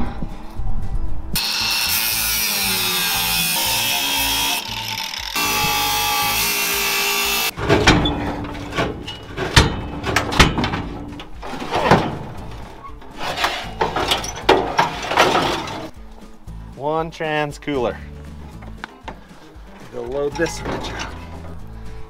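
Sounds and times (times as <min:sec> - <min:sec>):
angle grinder cutting steel: 0:01.4 - 0:07.6
metal clanks and knocks: 0:07.4 - 0:15.9, 0:18.6 - 0:21.6.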